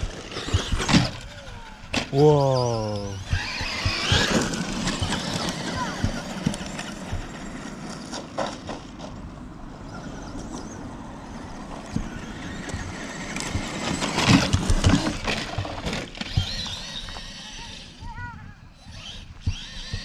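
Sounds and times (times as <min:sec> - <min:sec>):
gravel clicks: 0:00.0 - 0:09.3
rc truck tyres crunching gravel: 0:00.0 - 0:18.0, 0:18.8 - 0:20.0.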